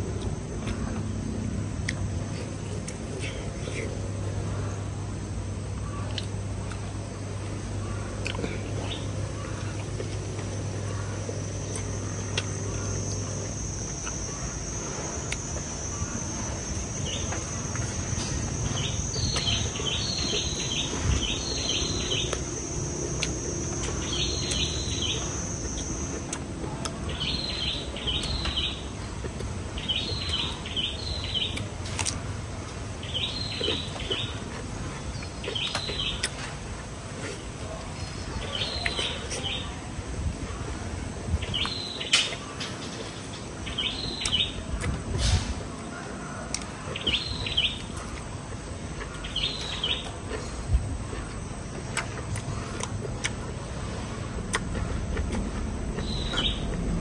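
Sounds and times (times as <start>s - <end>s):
bird chirping: 7.8s - 26.4s, 27.0s - 29.1s, 29.8s - 31.7s, 33.0s - 36.5s, 49.0s - 50.5s, 54.3s - 57.0s.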